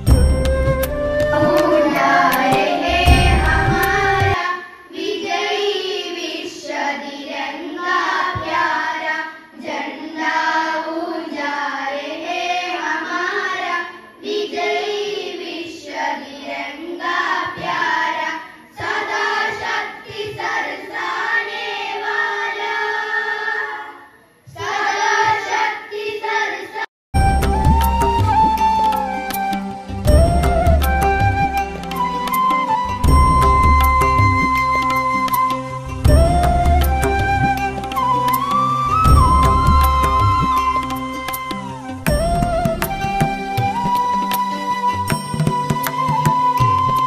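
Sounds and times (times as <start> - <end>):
backing music with beat: 0.0 - 4.4, 27.2 - 47.0
group singing in chorus: 1.1 - 26.9.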